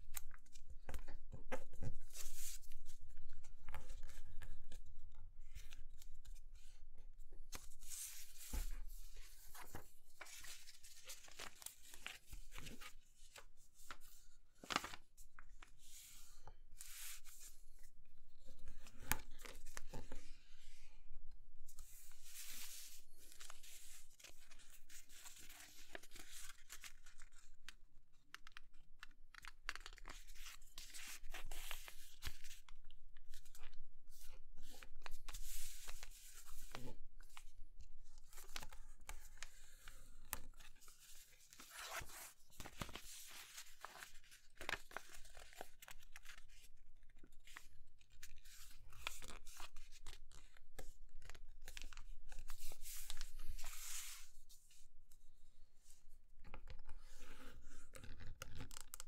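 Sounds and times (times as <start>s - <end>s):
paper rustling and crinkling: 7.4s - 17.3s, 22.0s - 27.5s, 28.4s - 32.7s, 38.1s - 54.4s.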